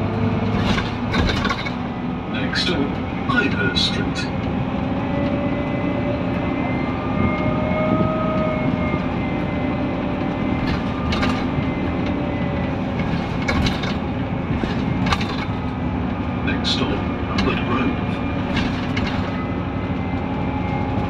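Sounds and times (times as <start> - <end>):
diesel bus engine drone: 0.0 - 21.0
short rattles: 0.5 - 1.9, 12.9 - 15.8, 18.4 - 19.5.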